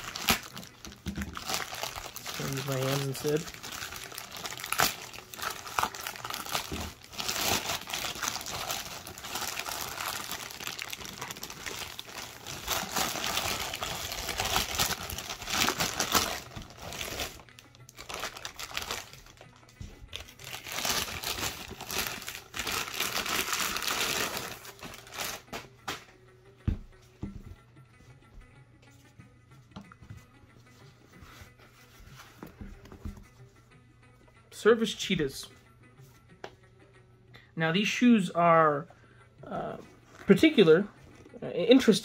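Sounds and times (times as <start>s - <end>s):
plastic bag tearing and crinkling: 0.0s - 19.4s, 20.2s - 25.6s.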